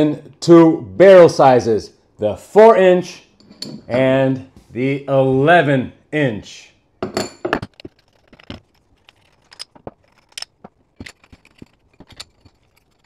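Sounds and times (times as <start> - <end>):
clicks of hard objects handled: 7.4 - 13.0.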